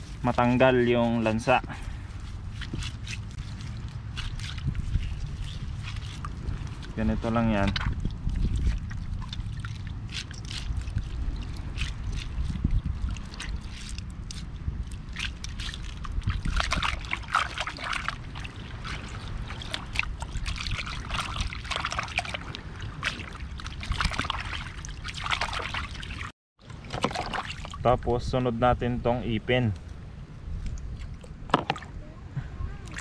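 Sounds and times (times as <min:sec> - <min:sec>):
hands squelching raw octopus: 0:00.0 - 0:26.3.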